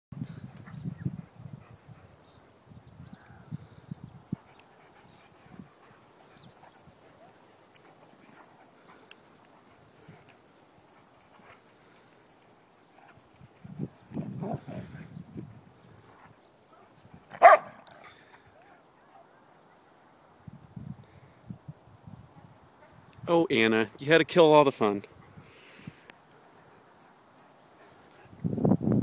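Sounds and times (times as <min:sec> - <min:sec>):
dogs play-wrestling noises: 0:04.3 - 0:15.1.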